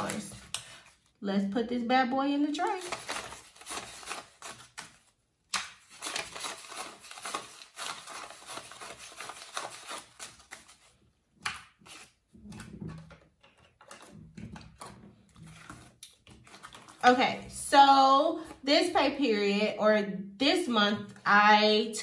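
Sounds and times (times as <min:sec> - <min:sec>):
banknotes rustling and crackling: 0:00.0 - 0:01.2, 0:02.4 - 0:17.7.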